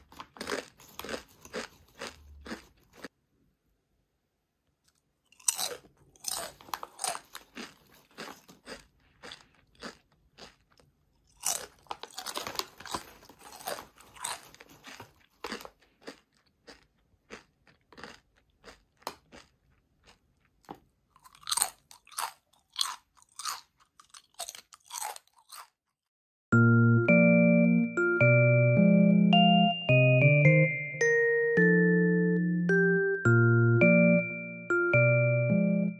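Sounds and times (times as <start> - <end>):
potato chips crunching: 0.0 - 3.2, 4.8 - 26.1
light piano music: 26.5 - 35.9.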